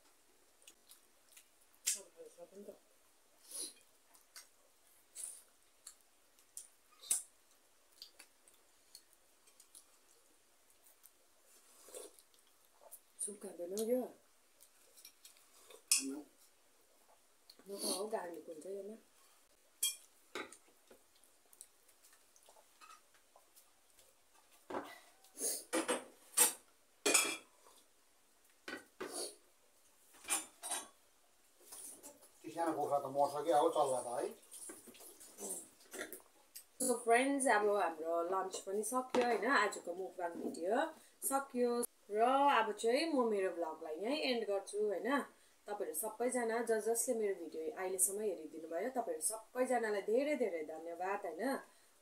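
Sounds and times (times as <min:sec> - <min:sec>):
wet mouth smacks and chewing: 0:05.8 - 0:10.0.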